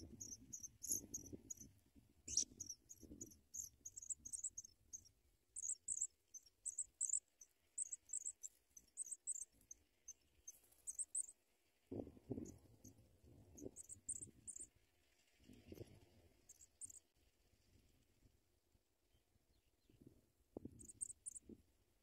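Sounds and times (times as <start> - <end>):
nestlings chirping: 0.0 - 1.7, 2.3 - 11.4, 13.6 - 14.7, 16.5 - 17.0.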